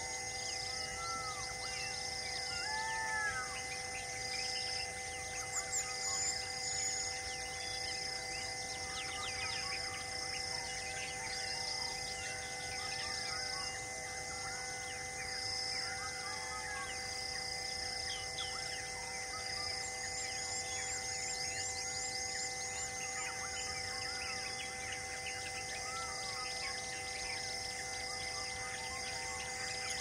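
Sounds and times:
insect hum: 0.0 - 30.0
birds chirping and calling: 8.7 - 10.0, 28.2 - 30.0.

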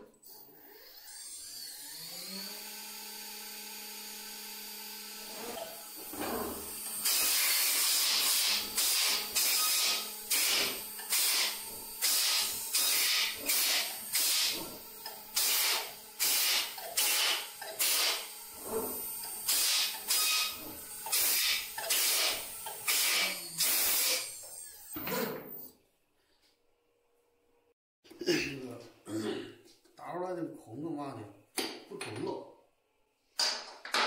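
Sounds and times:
cnc router cutting: 0.8 - 23.7.

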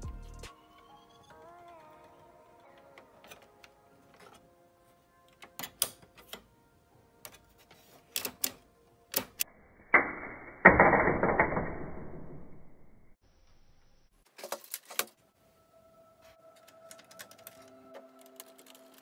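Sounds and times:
plastic parts clicking: 5.3 - 6.5, 7.2 - 9.4, 16.6 - 19.0.

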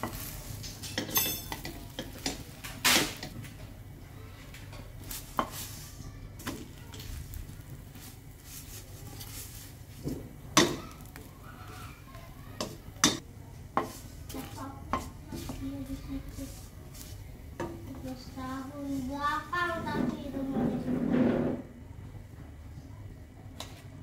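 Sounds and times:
faint frying sizzle: 0.0 - 21.1
spatula scraping a metal wok: 5.0 - 10.0.

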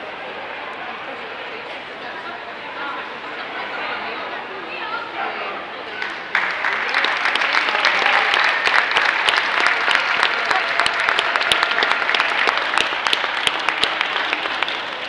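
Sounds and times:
audience applauding: 6.0 - 15.0.

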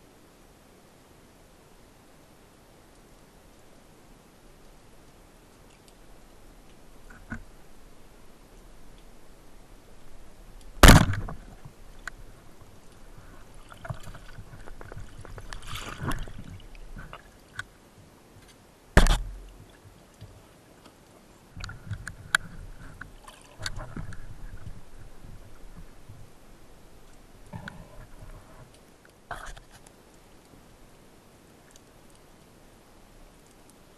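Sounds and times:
underwater rustling: 4.4 - 30.9
underwater bubbling: 10.2 - 17.6
speargun firing crack: 10.8 - 11.4, 19.0 - 19.3.

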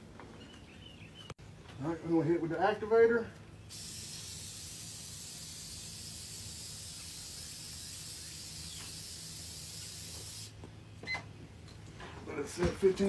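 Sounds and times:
aerosol can spraying hiss: 3.7 - 10.6.

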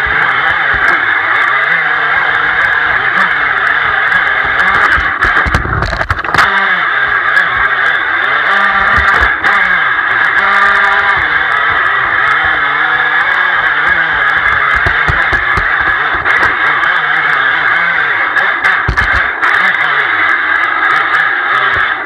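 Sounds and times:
boat motor whining: 0.0 - 22.0
hull knocking on rocks: 13.8 - 16.6, 18.8 - 19.2.

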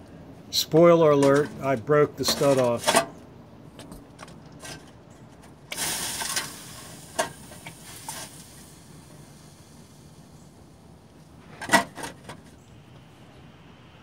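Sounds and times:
water hissing on hot metal: 5.7 - 10.9.

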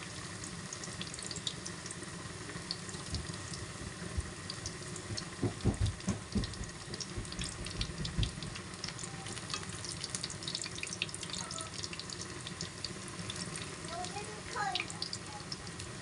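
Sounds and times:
deep-frying sizzle with pops: 0.0 - 16.0.

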